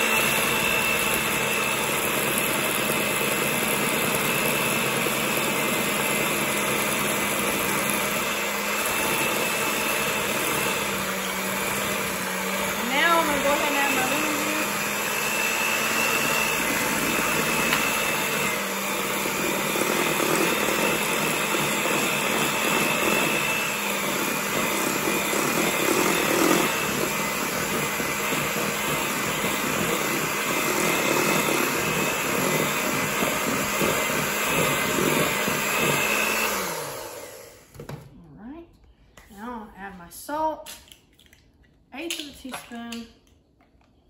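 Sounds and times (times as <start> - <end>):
electric hand mixer whining: 0.0 - 38.0.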